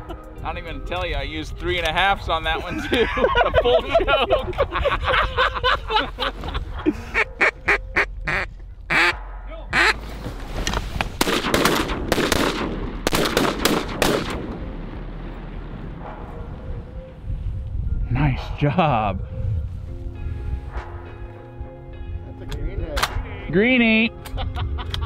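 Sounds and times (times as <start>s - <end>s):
duck quacking: 7.1s - 10.0s.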